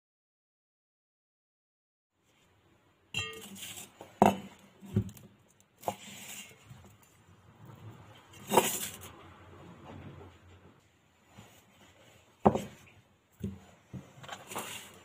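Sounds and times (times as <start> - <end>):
metal mixing bowl knocking and clinking: 3.2 - 3.6.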